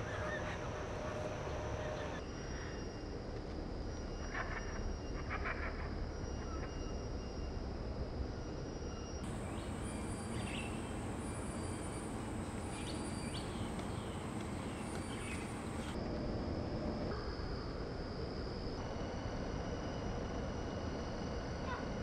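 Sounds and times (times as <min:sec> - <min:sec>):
high-pitched whine: 0:09.2 - 0:21.7.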